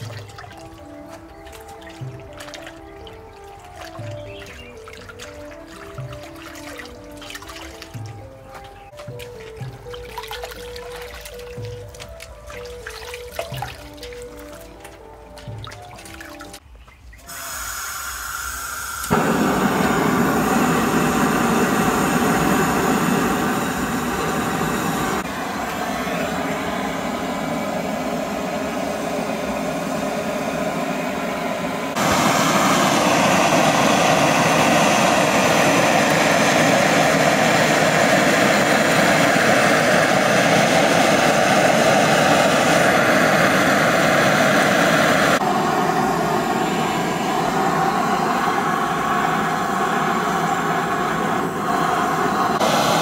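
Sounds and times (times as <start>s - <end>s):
blowtorch flame hissing: 17.3s - 25.7s, 26.7s - 53.0s.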